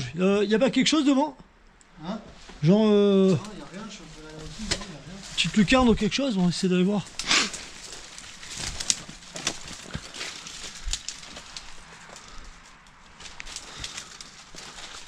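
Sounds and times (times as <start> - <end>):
footsteps through dry brush: 3.2 - 15.0
twigs crunching underfoot: 3.2 - 15.0.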